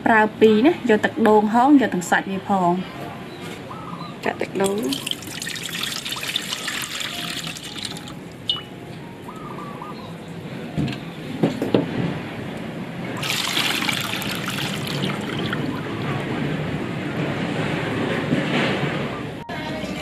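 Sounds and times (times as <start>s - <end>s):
coconut water pouring into pot: 4.6s - 8.6s, 13.2s - 16.2s.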